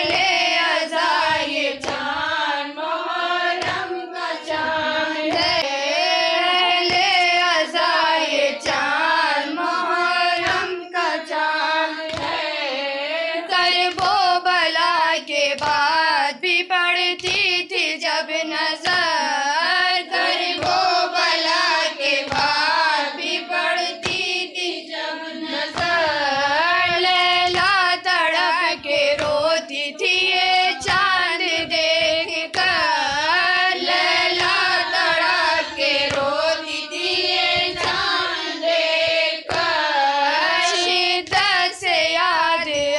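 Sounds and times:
hand beats on chest: 0.0s - 2.4s, 3.5s - 5.7s, 6.7s - 7.6s, 12.0s - 12.5s, 20.3s - 24.5s, 25.6s - 39.9s
woman singing a lament: 0.0s - 42.9s.

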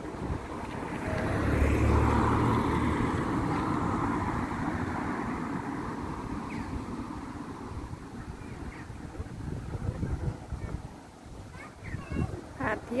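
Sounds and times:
car driving past: 0.4s - 7.9s.

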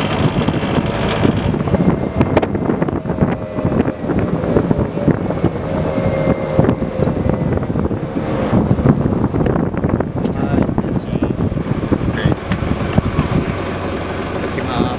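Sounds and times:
diesel engine running: 0.0s - 14.9s
steady whine: 0.0s - 14.9s
wind buffeting microphone: 0.0s - 14.9s.

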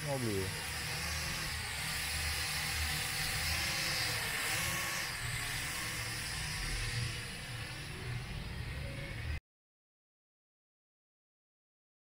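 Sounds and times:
drone propellers whirring: 0.0s - 9.4s.

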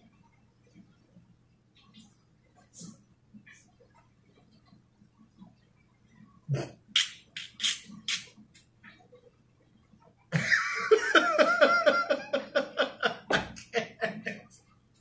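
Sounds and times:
man laughing nervously: 10.4s - 14.5s.

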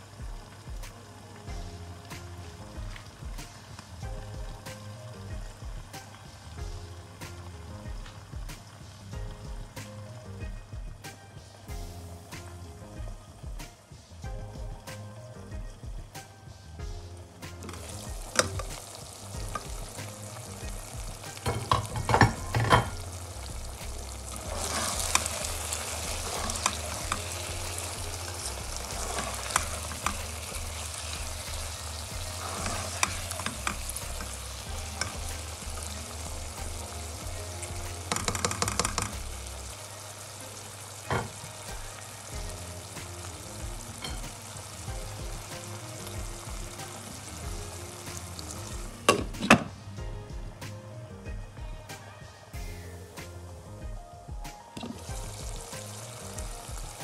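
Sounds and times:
vegetables sizzling in a pan: 0.0s - 53.9s, 54.8s - 57.0s
spatula scraping a pan: 19.4s - 37.0s.

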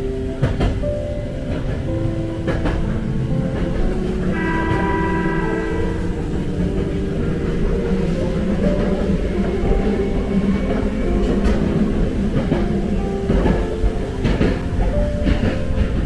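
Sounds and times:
train running rumble: 0.0s - 16.0s
high ringing tone: 4.2s - 7.9s.

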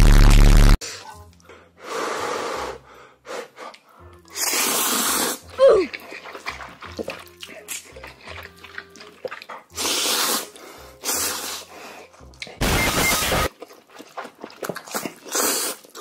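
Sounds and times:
noodles slurped loudly: 4.3s - 11.8s, 13.5s - 16.0s.

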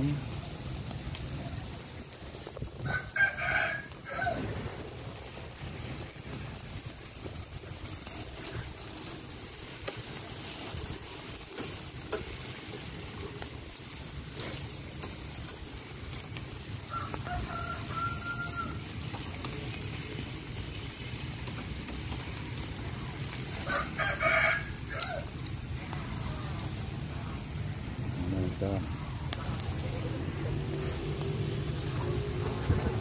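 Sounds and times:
meat grilling over charcoal: 0.0s - 33.0s
rooster crowing: 2.8s - 4.8s, 16.8s - 19.0s, 23.5s - 25.4s.

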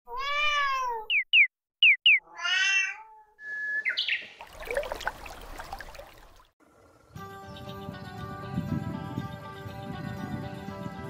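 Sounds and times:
cat meowing: 0.1s - 1.1s, 2.2s - 3.4s.

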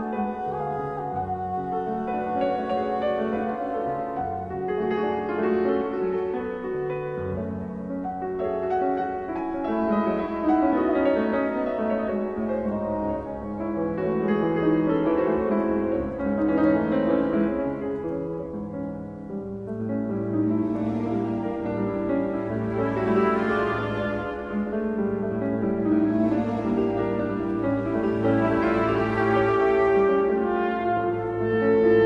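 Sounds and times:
slow classical piano: 0.0s - 32.0s.

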